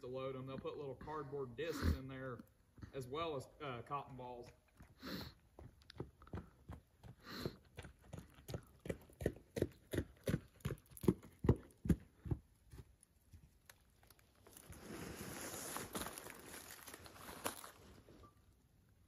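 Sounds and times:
footsteps jogging on gravel: 3.3 - 12.9.

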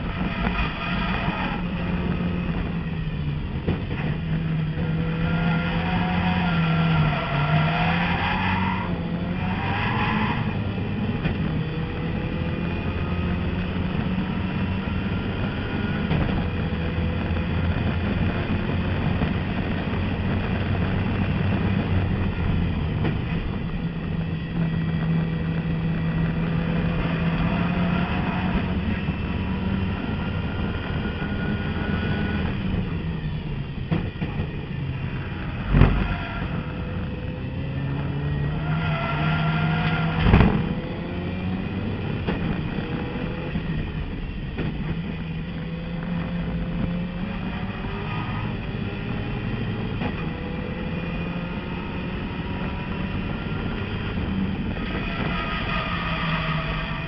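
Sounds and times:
race car engine accelerating: 0.0 - 57.0
loud thump: 40.2 - 40.7.

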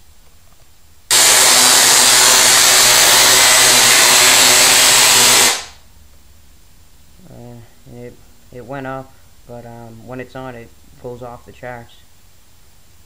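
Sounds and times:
tesla coil sparks buzzing: 1.1 - 5.8.

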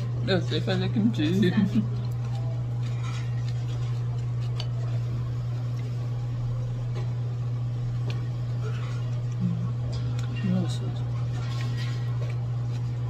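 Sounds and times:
low mechanical hum of machinery: 0.0 - 13.0.

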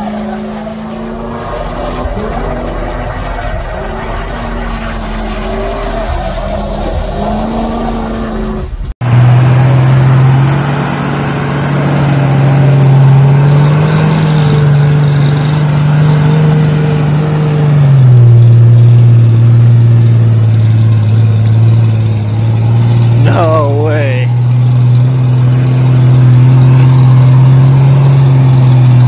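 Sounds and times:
truck engine running under load: 8.6 - 29.0.

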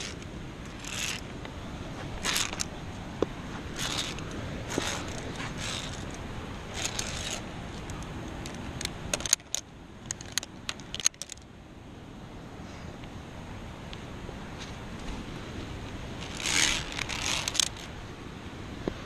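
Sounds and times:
carabiners clinking: 0.0 - 1.3, 2.1 - 2.8, 3.7 - 11.4, 16.2 - 17.9
rustling and scraping movement: 0.0 - 11.4, 14.5 - 18.0.

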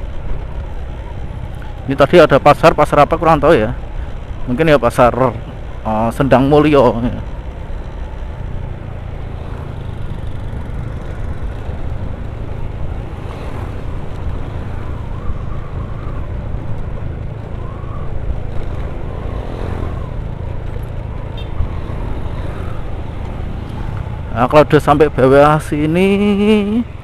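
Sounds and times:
wind and road noise: 0.0 - 27.0
scooter engine running: 5.3 - 14.7.

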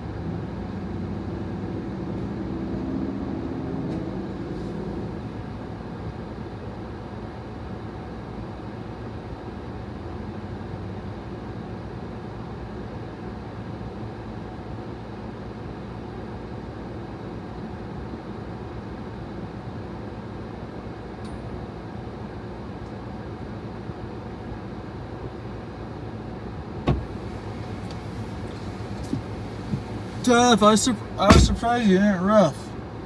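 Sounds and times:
vehicle idling hum: 0.0 - 33.0
sharp knock: 31.3 - 31.6.

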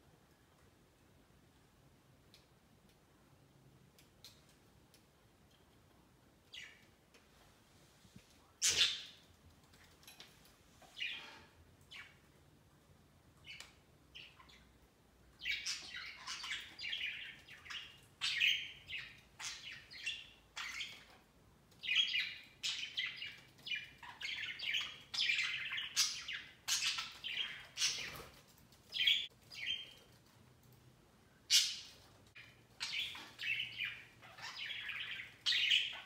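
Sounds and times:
budgerigars chirping and chattering: 8.6 - 9.2, 15.4 - 21.1, 21.8 - 28.3, 31.5 - 36.0.

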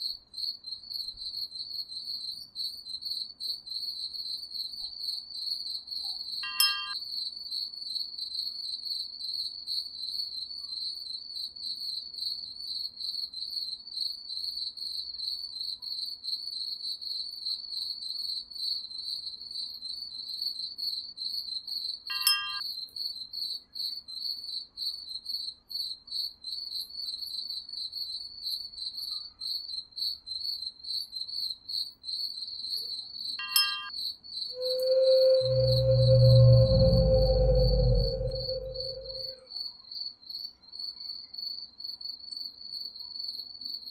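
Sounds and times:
crickets chirping: 6.4 - 7.0, 22.1 - 22.6, 33.4 - 33.9, 34.6 - 39.4
short chime ringing: 6.4 - 7.0, 22.1 - 22.6, 33.4 - 33.9.

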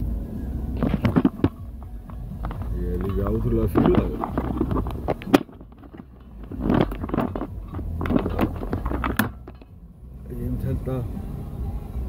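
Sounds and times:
low car rumble: 0.0 - 12.0
phone rubbing and scraping: 0.8 - 9.6.

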